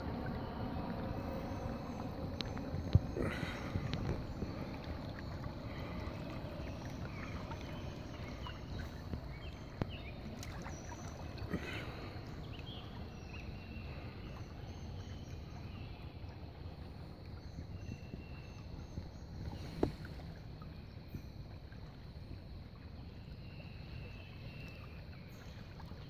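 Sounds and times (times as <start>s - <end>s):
wind rumbling on microphone: 0.0s - 14.3s
river flowing: 0.0s - 23.0s.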